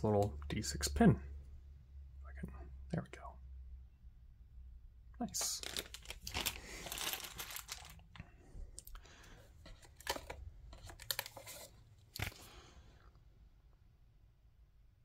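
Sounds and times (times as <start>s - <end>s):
plastic packaging crinkling: 5.4s - 8.2s, 9.6s - 12.4s.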